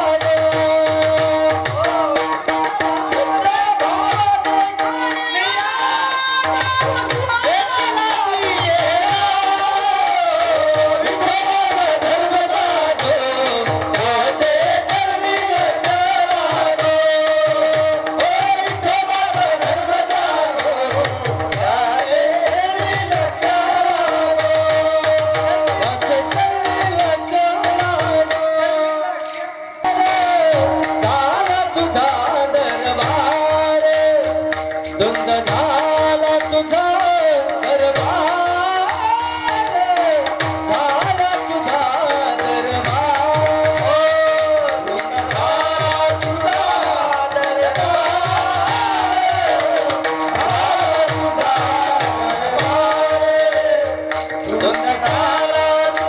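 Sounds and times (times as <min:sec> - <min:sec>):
jingling percussion: 0:00.0 - 0:56.0
person singing devotional melody: 0:00.0 - 0:56.0
drum beat: 0:30.1 - 0:56.0.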